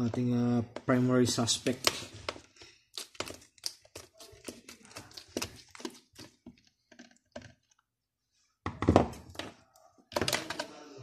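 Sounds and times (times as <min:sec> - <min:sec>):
plastic parts knocking and rattling: 0:05.2 - 0:07.8, 0:08.6 - 0:10.8.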